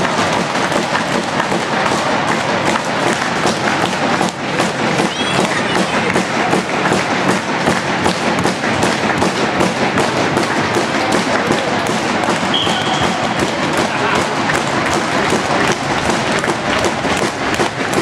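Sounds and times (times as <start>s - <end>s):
arena crowd noise: 0.0s - 18.0s
rapid knocking thuds: 0.0s - 18.0s
referee whistle blast: 12.5s - 13.4s.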